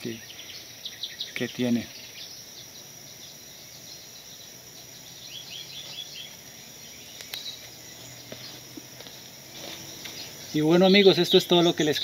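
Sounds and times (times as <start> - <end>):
bird chirps: 0.0 - 12.0
high insect trill: 0.0 - 12.0
faint clicks: 7.2 - 7.5.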